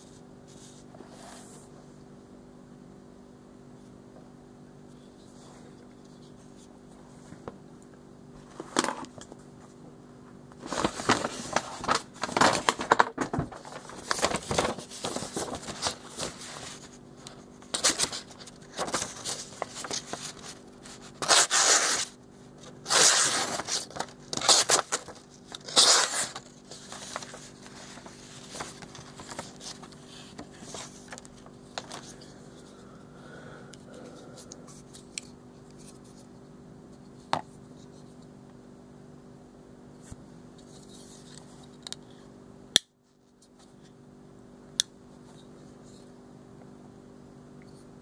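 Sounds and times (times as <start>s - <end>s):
knife slicing paper: 21.0s - 22.1s, 22.8s - 26.5s.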